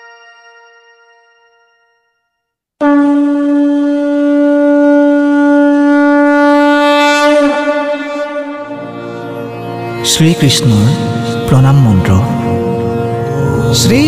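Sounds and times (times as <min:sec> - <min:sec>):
conch shell blown: 0:02.8 - 0:13.9.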